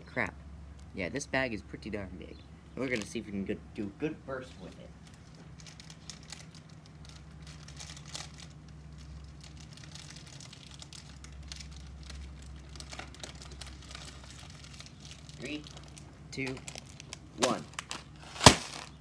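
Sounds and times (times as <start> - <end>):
steady low hum: 0.0 - 19.0
plastic chip bag crinkling: 2.8 - 3.3, 4.5 - 19.0.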